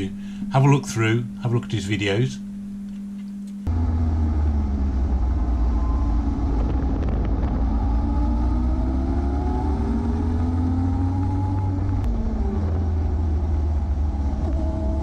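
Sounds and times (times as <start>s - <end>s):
faint steady hum: 0.0s - 15.0s
motorcycle engine: 3.7s - 15.0s
wind rumble on microphone: 4.3s - 15.0s.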